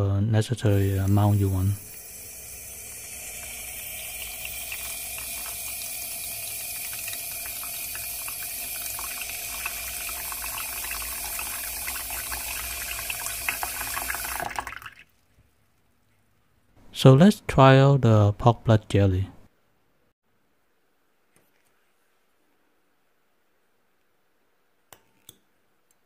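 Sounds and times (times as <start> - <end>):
tap water filling a tub: 0.8 - 15.2.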